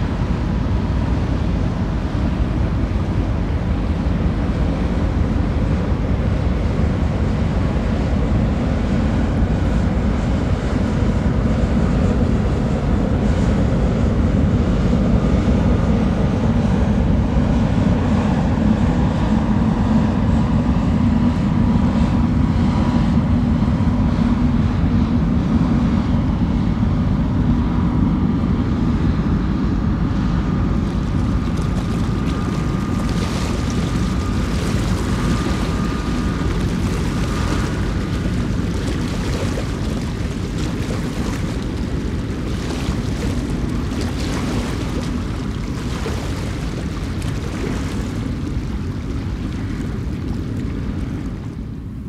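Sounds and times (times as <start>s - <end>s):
wind on microphone: 0.0s - 52.0s
faint steady hum: 28.2s - 52.0s
ship engines rumbling: 29.8s - 52.0s
small waves washing against rocks: 30.9s - 51.4s.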